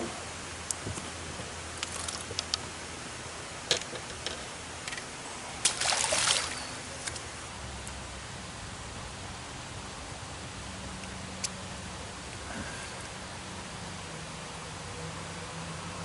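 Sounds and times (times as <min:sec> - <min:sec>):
water splash: 0:05.6 - 0:06.7.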